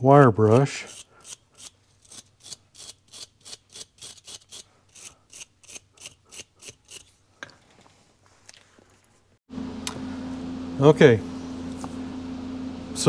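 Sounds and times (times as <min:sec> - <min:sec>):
wire brush scrubbing metal: 0:00.4 - 0:07.2.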